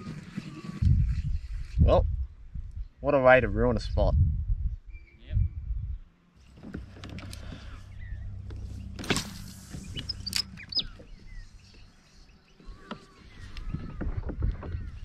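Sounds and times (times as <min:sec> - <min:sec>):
bird chirps: 0:04.8 - 0:06.1, 0:07.6 - 0:15.0
electric motor humming: 0:06.4 - 0:13.8.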